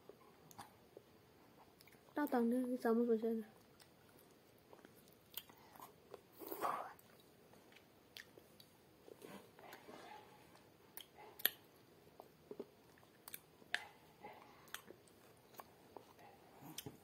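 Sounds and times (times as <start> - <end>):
people chewing: 3.6 - 17.0.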